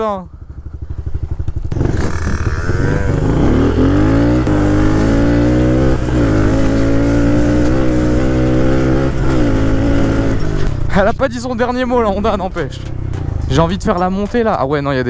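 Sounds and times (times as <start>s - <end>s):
dirt bike engine revving: 0.0s - 10.9s.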